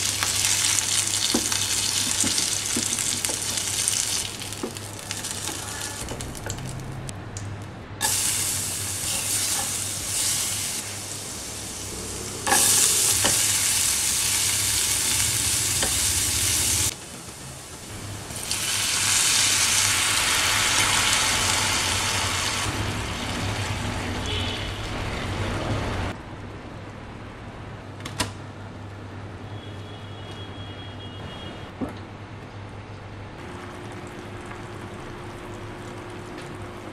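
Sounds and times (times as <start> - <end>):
garlic sizzling in a frying pan: 0.0 - 6.7, 8.0 - 24.0.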